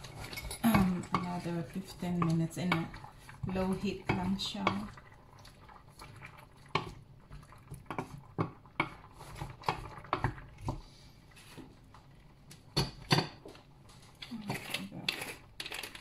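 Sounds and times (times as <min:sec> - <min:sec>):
utensils tapping metal pot: 0:00.0 - 0:05.0.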